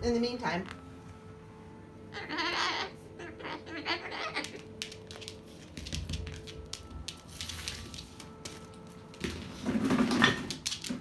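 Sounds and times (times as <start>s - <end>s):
bird claws clicking on floor: 4.4s - 8.1s.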